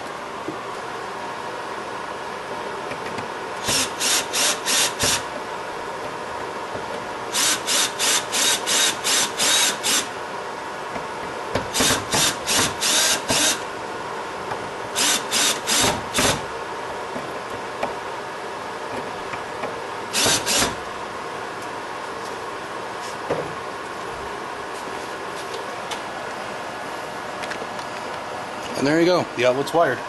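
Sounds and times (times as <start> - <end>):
screwdriver driving screws: 3.6 - 5.2, 7.3 - 10.1, 11.7 - 13.6, 15.0 - 16.4, 20.2 - 20.8.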